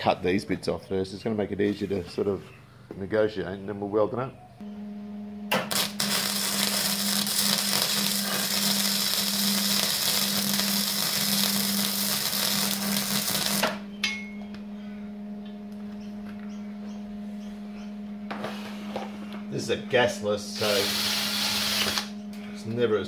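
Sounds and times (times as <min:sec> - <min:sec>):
steady low hum: 0:00.0 - 0:23.0
welder arc crackling: 0:05.5 - 0:13.8.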